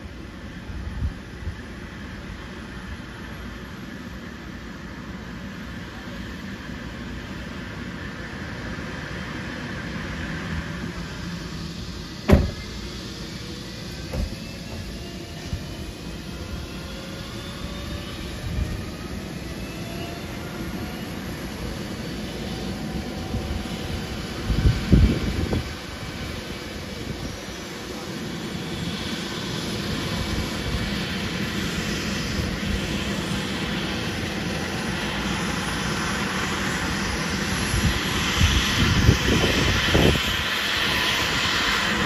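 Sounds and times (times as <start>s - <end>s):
helicopter turbine engines whining: 0.0s - 42.0s
sharp knock: 12.3s - 12.6s
soft thumps: 14.1s - 14.8s.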